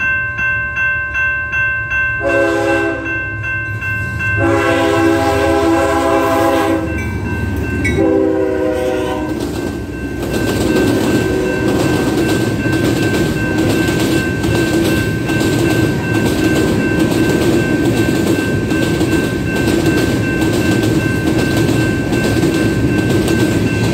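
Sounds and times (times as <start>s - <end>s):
train cars rumbling: 0.0s - 23.9s
locomotive air horn: 2.2s - 3.1s, 4.4s - 7.0s, 8.0s - 9.4s, 11.2s - 12.2s
rhythmic wheel clacking: 9.3s - 23.9s.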